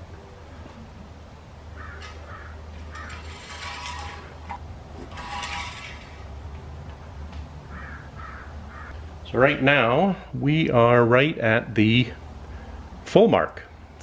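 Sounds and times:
steady low hum: 0:00.0 - 0:14.0
crows cawing: 0:01.8 - 0:03.2, 0:07.7 - 0:09.0.

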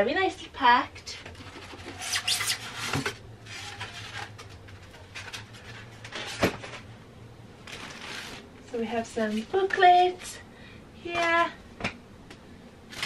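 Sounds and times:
packaging rustling and scraping: 0:01.1 - 0:07.0, 0:07.6 - 0:08.5.

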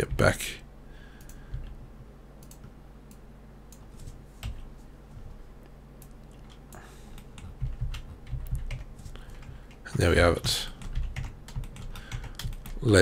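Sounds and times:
keyboard keystrokes: 0:07.2 - 0:08.9.

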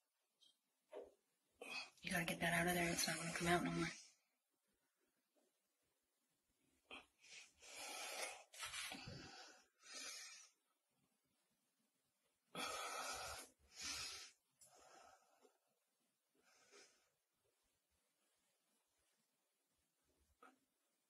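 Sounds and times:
person breathing: 0:06.9 - 0:10.6, 0:12.5 - 0:15.6, 0:16.4 - 0:17.2.

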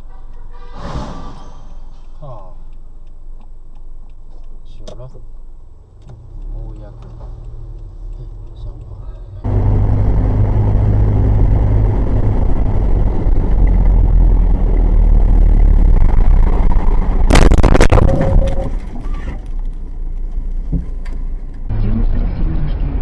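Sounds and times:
car engine and tyres rumbling: 0:00.0 - 0:23.0
collision bangs and crunching: 0:17.3 - 0:19.3.

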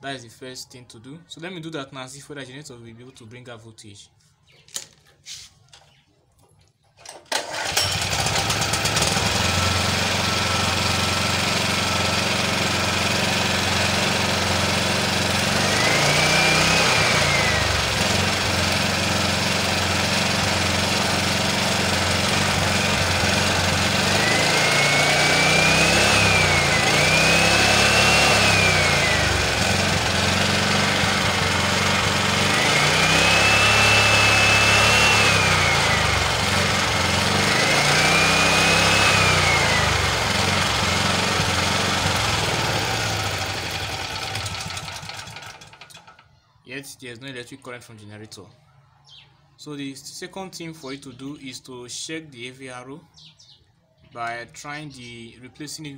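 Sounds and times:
generator engine running and revving: 0:07.3 - 0:46.2.

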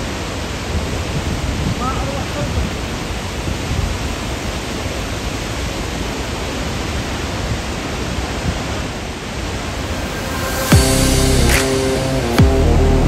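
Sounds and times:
waterfall roaring: 0:00.0 - 0:13.0
low rumble: 0:09.6 - 0:13.0.

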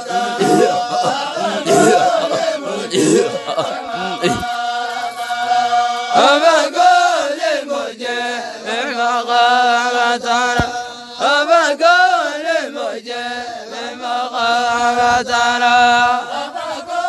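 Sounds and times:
voices chanting long notes: 0:00.0 - 0:08.7
sharp knock: 0:10.6 - 0:10.8.

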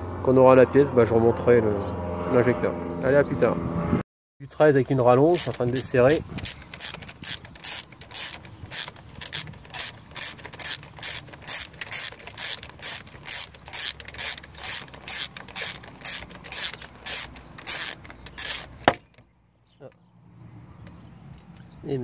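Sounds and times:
socket ratchet clicking: 0:05.2 - 0:19.2.

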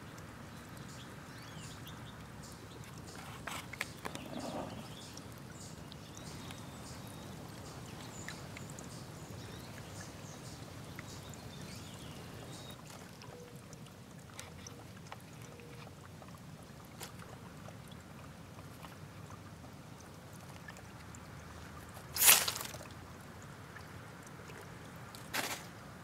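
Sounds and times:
dry leaves rustling: 0:22.2 - 0:22.8.

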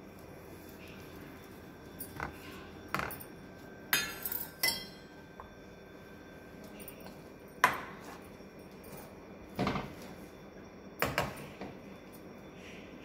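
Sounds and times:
dishes clinking: 0:03.9 - 0:05.3.

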